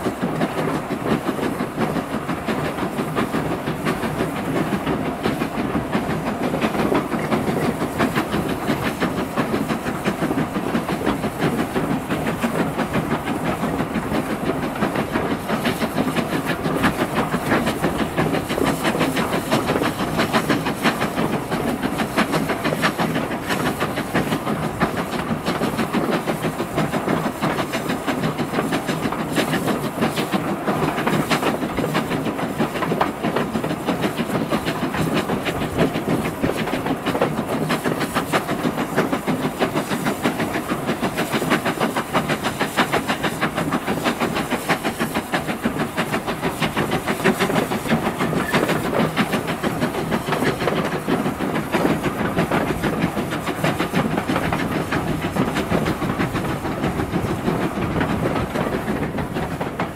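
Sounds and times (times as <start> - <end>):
steam locomotive exhaust beat: 0.0 - 59.9
wheels clicking over rails: 0.0 - 59.9.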